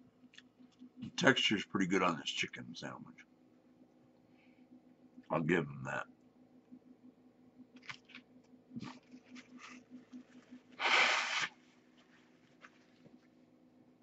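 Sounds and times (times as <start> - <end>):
man blowing his nose: 10.8 - 11.6.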